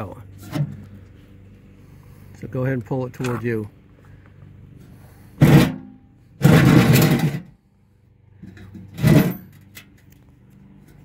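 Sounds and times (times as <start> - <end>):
metal deck scraping: 4.8 - 7.6, 8.4 - 9.9
metal clunk: 5.4 - 7.5, 8.4 - 10.1.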